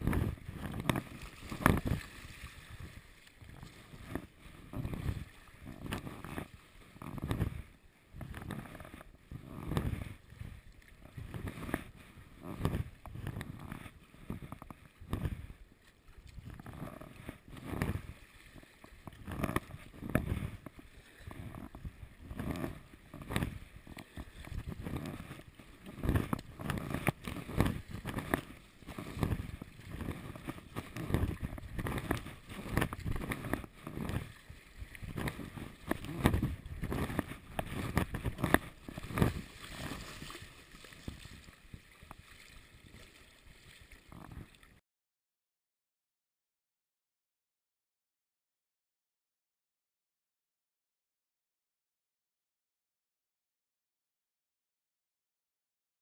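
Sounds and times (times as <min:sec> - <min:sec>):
paddle blades splashing: 0:00.0 - 0:44.8
waves sloshing against hull: 0:00.0 - 0:44.8.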